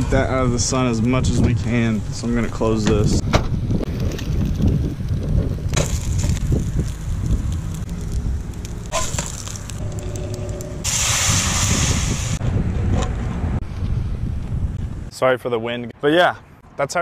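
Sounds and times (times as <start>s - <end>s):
wind buffeting microphone: 0.0s - 8.9s, 9.7s - 15.1s
hiss: 10.8s - 12.4s.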